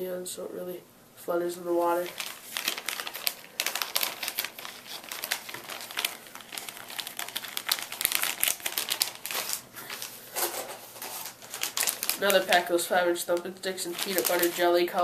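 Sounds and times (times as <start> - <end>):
plastic bag crinkling: 1.9 - 15.0.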